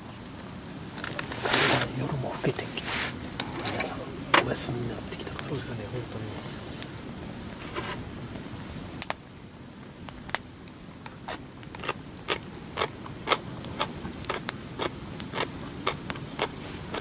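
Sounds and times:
wood fire crackling: 0.0 - 17.0
firewood popping: 0.4 - 9.3.

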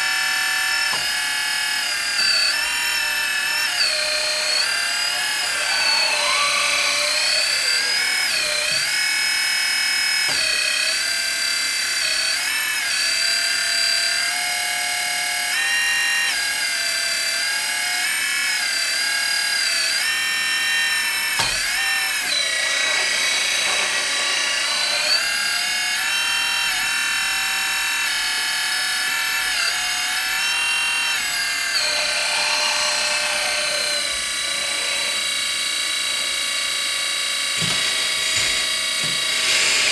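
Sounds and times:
electric hydraulic pump whining: 0.0 - 12.0, 21.1 - 28.5, 29.1 - 39.9.

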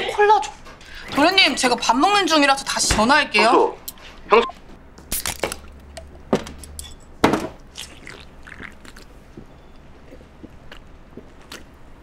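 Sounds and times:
can opening crack: 5.1 - 5.6.

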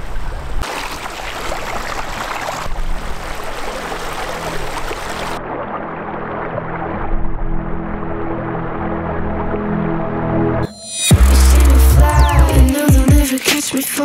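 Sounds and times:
water rushing over rocks: 0.6 - 8.2.

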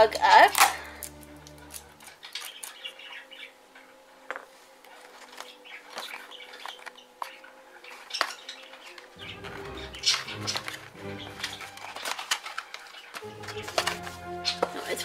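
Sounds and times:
background music: 0.0 - 15.0
packaging rustling: 4.3 - 15.0.

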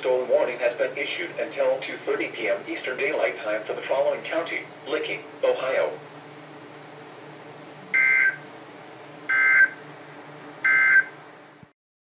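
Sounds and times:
receiver hiss and hum: 0.0 - 11.8
warbling two-tone data squawks: 8.0 - 8.4, 9.3 - 9.8.

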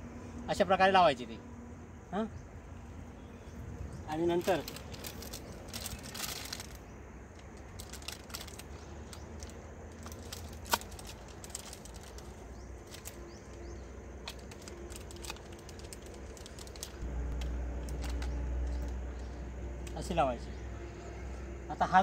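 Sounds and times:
plastic clicks and rustling: 4.4 - 19.0
low rumble: 11.0 - 21.8.

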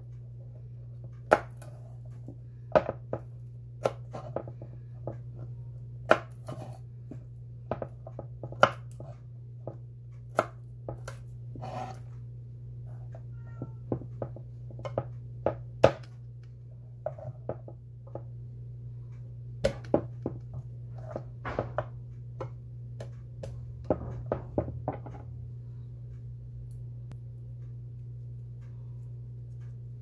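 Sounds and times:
steady low hum: 0.0 - 30.0
knife striking cutting board: 13.8 - 16.1, 19.6 - 25.2.

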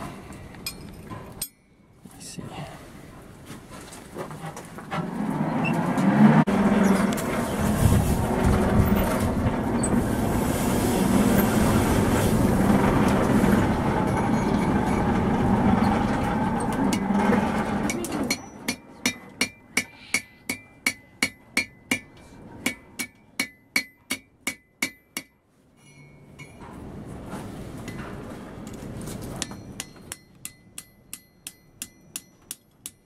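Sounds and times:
hammer striking iron on anvil: 1.4 - 1.8, 17.9 - 26.7, 29.4 - 33.0
loud rushing noise with hum: 5.3 - 17.9.

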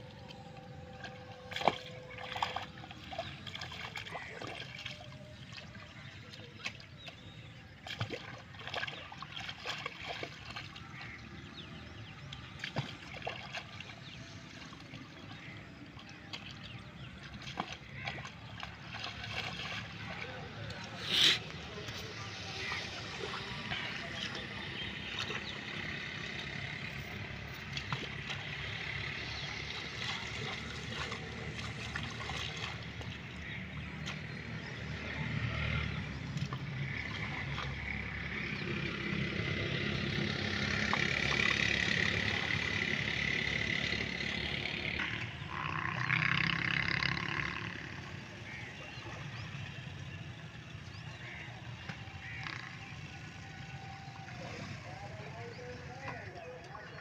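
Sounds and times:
spade scraping in wet mud: 20.9 - 22.1.

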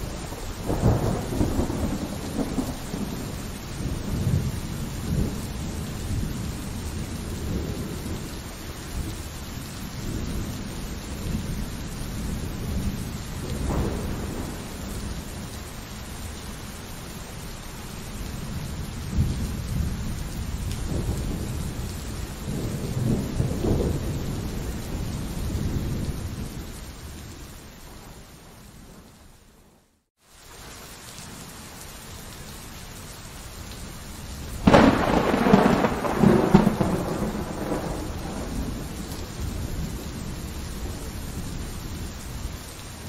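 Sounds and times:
rolling thunder: 0.0 - 8.3, 10.0 - 15.5, 18.4 - 26.8, 34.6 - 42.5
pouring rain: 0.0 - 43.0
sharp thunder crack: 34.6 - 39.8.

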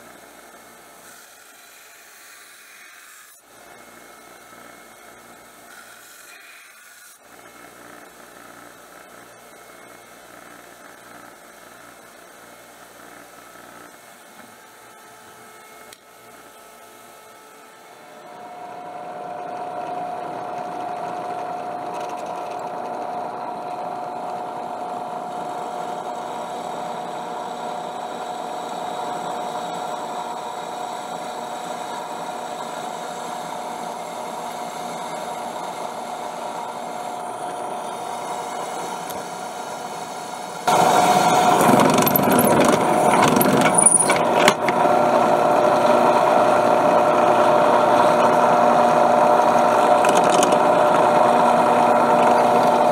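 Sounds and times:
drill press drilling steel: 18.8 - 52.9.

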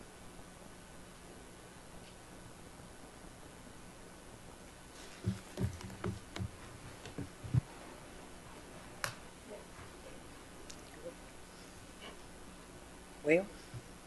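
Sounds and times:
faint steady hum: 0.0 - 14.0
knocks and thumps on lectern: 5.1 - 7.7.

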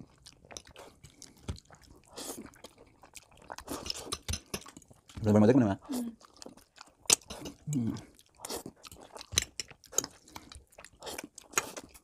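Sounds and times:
people slurping noodles: 0.8 - 4.5, 7.1 - 9.1.

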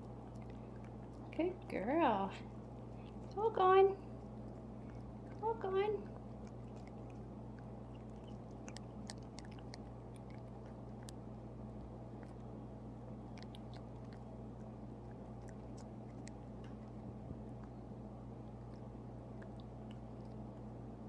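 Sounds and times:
cat mouth clicks: 6.0 - 11.2, 13.3 - 14.3.

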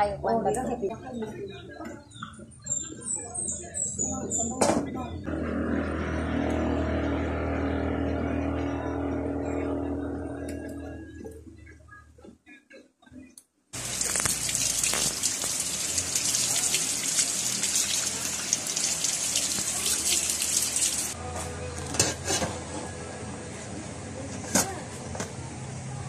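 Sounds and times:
steady pitched tone: 5.3 - 11.6
tap water gushing and splashing: 13.8 - 21.2.

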